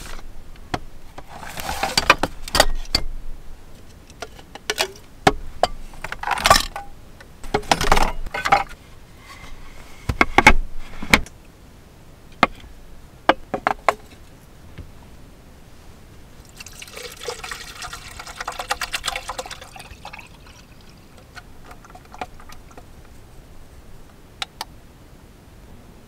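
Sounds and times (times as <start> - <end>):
items clicking and clattering: 3.8 - 8.8.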